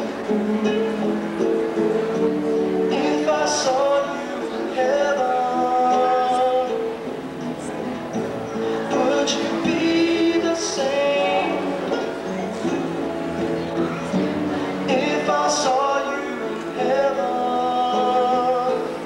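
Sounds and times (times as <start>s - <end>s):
music accompaniment: 0.0s - 19.0s
man singing into microphone: 2.9s - 7.2s, 8.6s - 12.7s, 14.4s - 19.0s.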